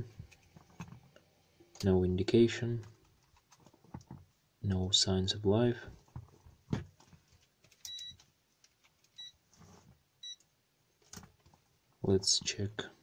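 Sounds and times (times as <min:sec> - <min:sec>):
cables clicking and rustling: 0:00.0 - 0:01.9, 0:02.7 - 0:04.3, 0:06.0 - 0:09.7
multimeter beeps: 0:07.9 - 0:08.2, 0:09.2 - 0:09.4, 0:10.2 - 0:10.4.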